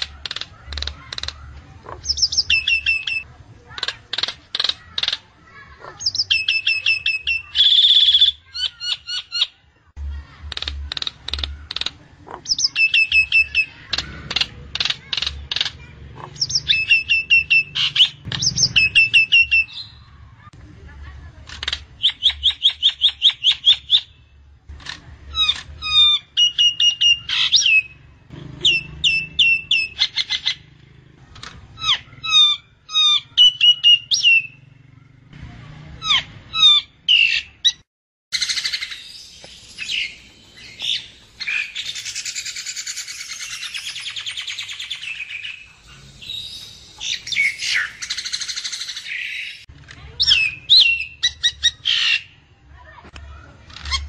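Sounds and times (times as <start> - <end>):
myna calling: 10.4 - 20.2.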